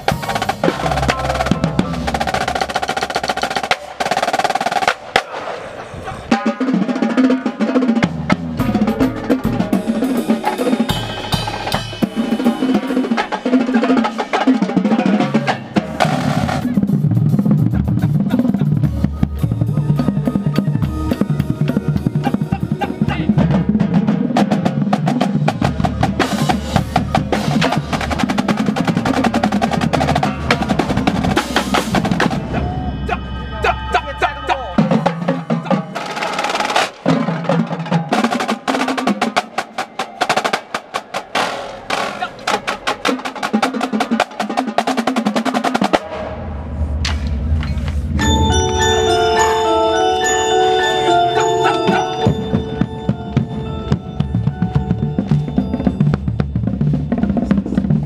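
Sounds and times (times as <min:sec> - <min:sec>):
snare drums playing rolls: 0:00.0 - 0:05.5
tenor and bass drums: 0:00.0 - 0:39.6, 0:51.9 - 0:58.0.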